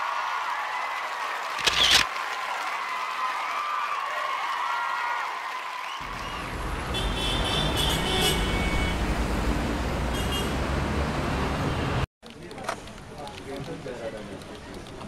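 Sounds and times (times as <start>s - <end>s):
car horns tooting: 6.0s - 9.2s, 10.1s - 10.8s.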